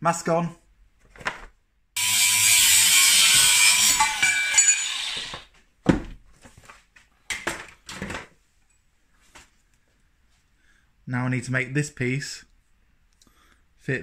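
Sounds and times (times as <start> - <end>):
angle grinder cutting steel: 2.0 - 5.5.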